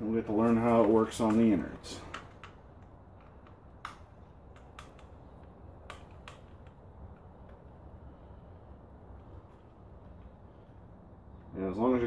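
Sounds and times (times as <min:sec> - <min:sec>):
screwdriver clicking on plastic: 0:01.3 - 0:06.8.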